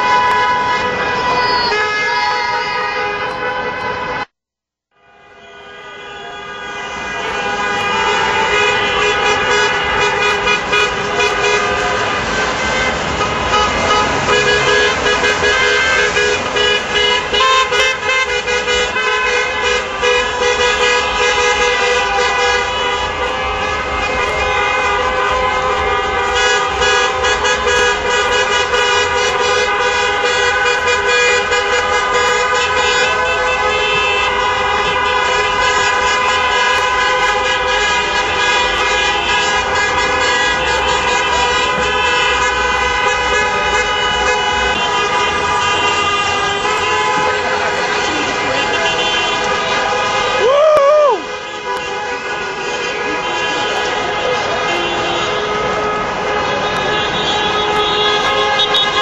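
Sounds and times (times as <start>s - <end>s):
car horns honking: 0.0s - 4.3s, 5.0s - 59.0s
street traffic: 0.0s - 59.0s.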